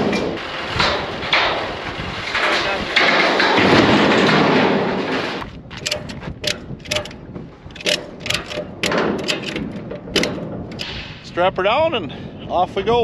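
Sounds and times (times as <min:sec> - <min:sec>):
loud steady noise: 0:00.0 - 0:07.2
ratchet strap clicks: 0:05.7 - 0:11.0.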